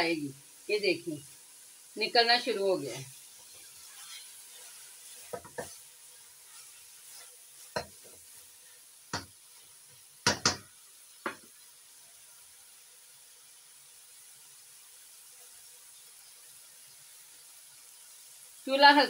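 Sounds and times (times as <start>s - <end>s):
mince sizzling: 0.0s - 19.0s
spatula scraping a metal pot: 3.5s - 5.8s.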